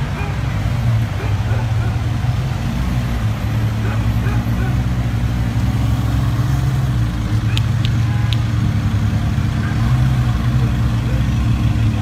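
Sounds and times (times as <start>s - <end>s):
car engines rumbling: 0.0s - 12.0s.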